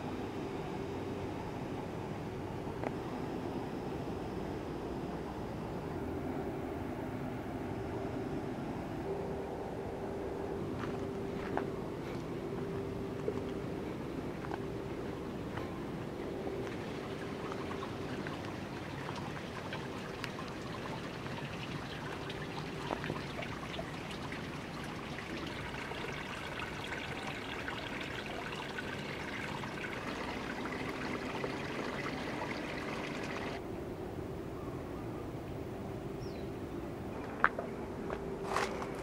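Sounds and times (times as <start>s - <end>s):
stream water trickling: 6.2s - 33.6s, 38.4s - 39.0s.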